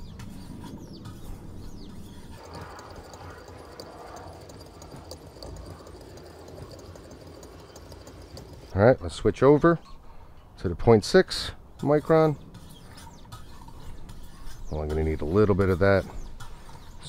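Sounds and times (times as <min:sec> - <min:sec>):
soft scraping of sharpening stones: 0:11.9 - 0:14.7.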